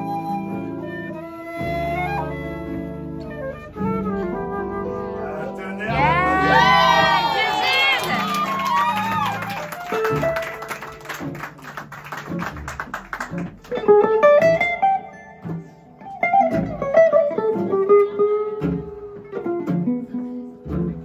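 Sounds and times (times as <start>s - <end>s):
single-note guitar melody: 0.0s - 7.3s, 13.4s - 21.0s
guitar chords strummed: 5.3s - 7.8s, 13.3s - 21.0s.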